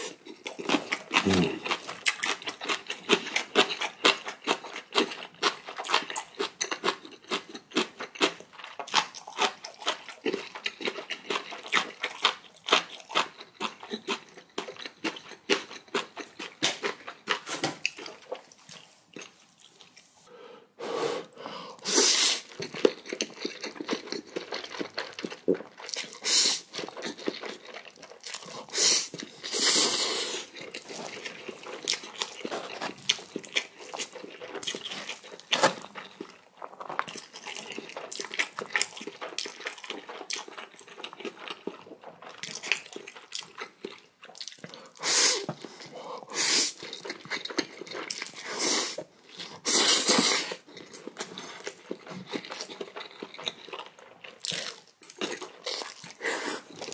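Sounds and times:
wet chewing: 0:00.0 - 0:20.1, 0:22.4 - 0:56.9
slurping noodles: 0:01.1 - 0:01.8, 0:49.6 - 0:50.7.

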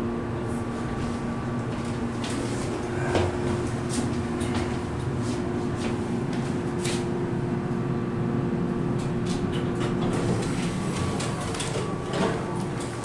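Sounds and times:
elevator hum: 0:00.0 - 0:13.0
elevator cab clicks and rattles: 0:08.9 - 0:13.0.

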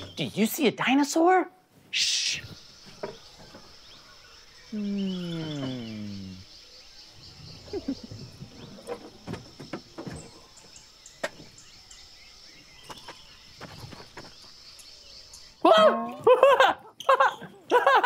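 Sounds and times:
people climbing out of plastic cart: 0:07.6 - 0:11.6.

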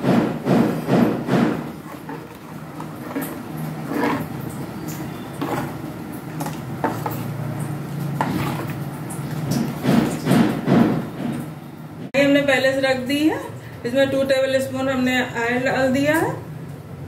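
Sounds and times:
spoon stirring in a metal bowl: 0:01.6 - 0:10.2.

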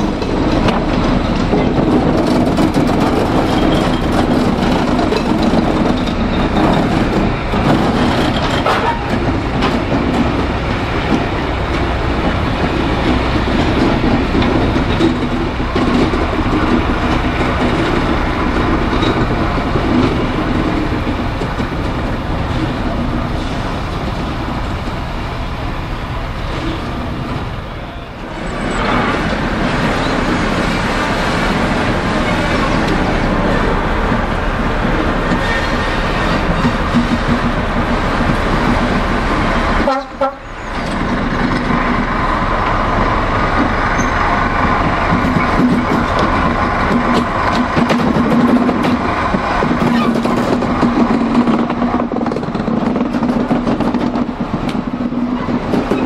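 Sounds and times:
diesel locomotive engine: 0:00.0 - 0:56.0
wheels on rail: 0:00.0 - 0:56.0.

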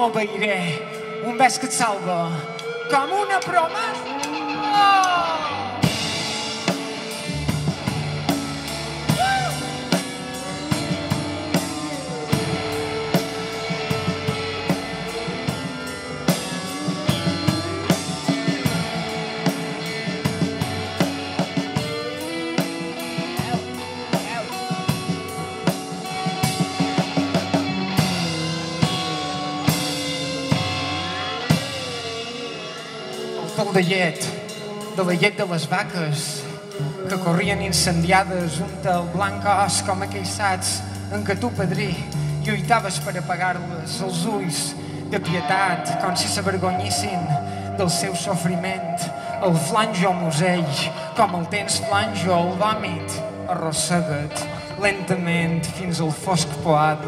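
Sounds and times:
electric guitar: 0:00.0 - 0:57.0
low bass notes: 0:00.0 - 0:57.0
drum kit beat: 0:04.0 - 0:35.9.

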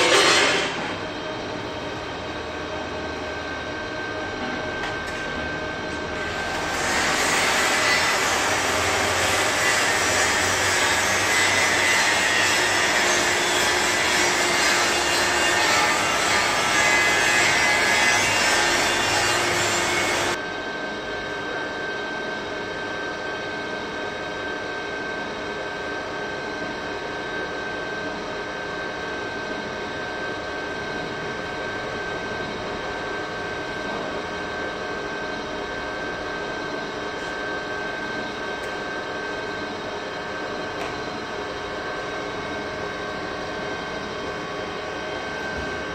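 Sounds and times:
machine drone: 0:00.0 - 0:20.5.

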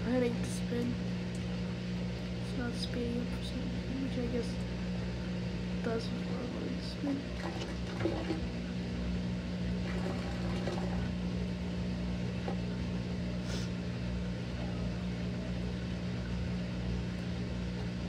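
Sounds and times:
washing machine spin humming: 0:00.0 - 0:18.0.

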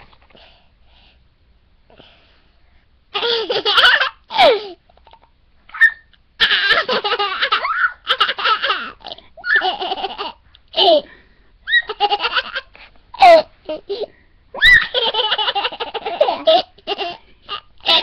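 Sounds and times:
toddler laughing: 0:03.2 - 0:04.8, 0:05.8 - 0:11.1, 0:11.7 - 0:18.0.

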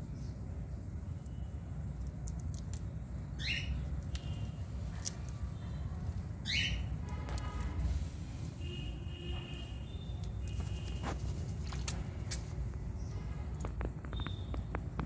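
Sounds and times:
parakeet squawks: 0:06.4 - 0:06.9
wings fluttering: 0:10.4 - 0:12.6.

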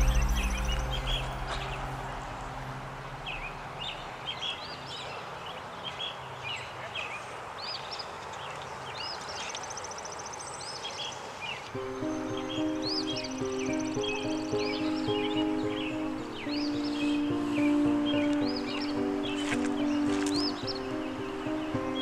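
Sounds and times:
background music: 0:00.0 - 0:03.9, 0:11.8 - 0:22.0
birds chirping and trilling: 0:00.0 - 0:22.0
steady outdoor hiss: 0:00.0 - 0:22.0.

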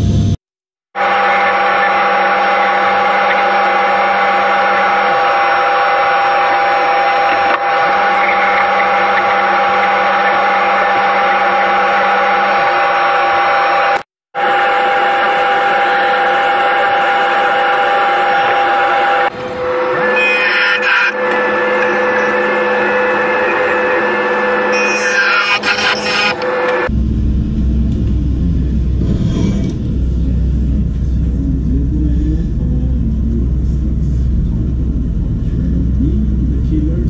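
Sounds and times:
wood lathe whining: 0:01.0 - 0:26.9.

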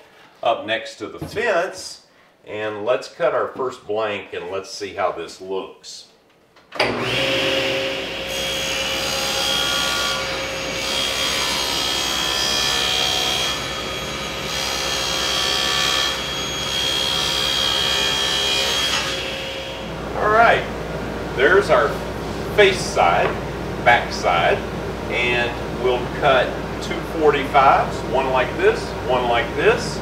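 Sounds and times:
saw cutting plywood: 0:06.8 - 0:20.1
table saw whine: 0:06.8 - 0:23.4.

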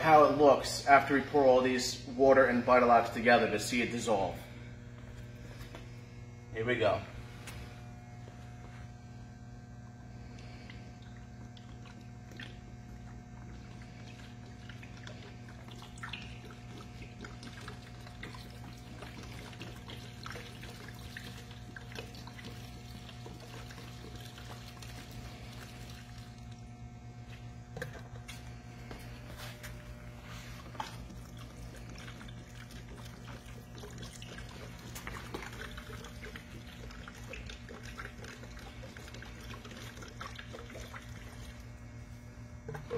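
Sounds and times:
electrical hum: 0:00.0 - 0:42.9
liquid pouring into plastic tub: 0:10.2 - 0:42.9.

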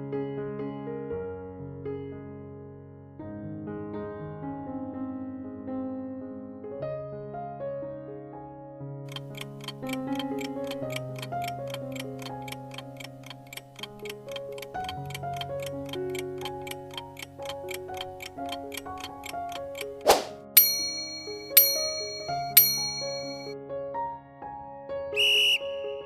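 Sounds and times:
soft background piano music: 0:00.0 - 0:26.0
clock ticking fast: 0:09.1 - 0:23.5.

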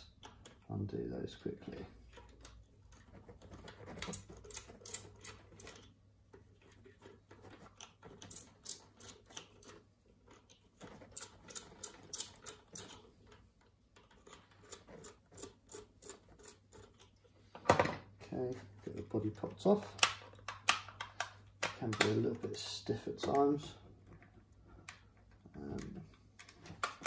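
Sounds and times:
small screwdriver clicking and scraping: 0:02.1 - 0:13.4, 0:14.0 - 0:17.3.

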